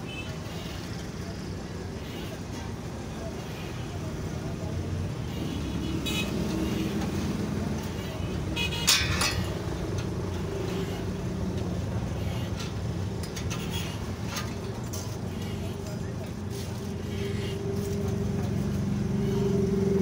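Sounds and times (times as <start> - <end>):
street traffic rumble: 0.0 - 20.0
metal bar clanking: 8.7 - 9.7.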